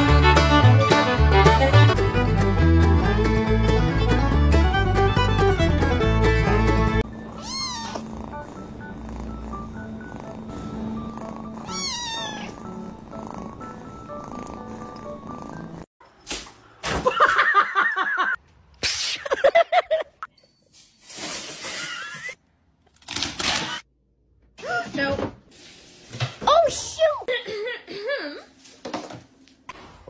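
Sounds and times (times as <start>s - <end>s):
soft music: 0.0s - 15.9s
cats yowling: 7.4s - 8.1s, 11.6s - 12.6s
kitten purring: 7.4s - 15.9s.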